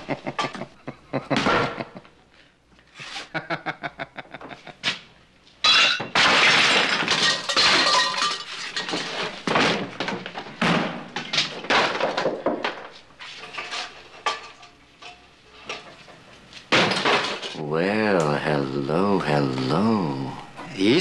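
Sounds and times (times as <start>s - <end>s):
glass and crockery smashing: 5.6s - 10.0s, 16.7s - 17.6s.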